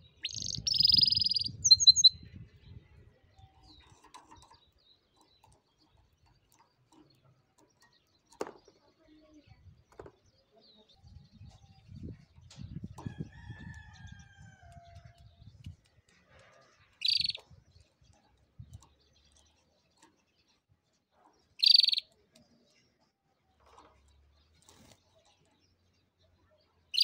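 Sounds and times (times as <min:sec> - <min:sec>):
canary chirping: 0:00.0 - 0:02.6, 0:16.9 - 0:20.7, 0:21.4 - 0:22.2, 0:23.6 - 0:27.0.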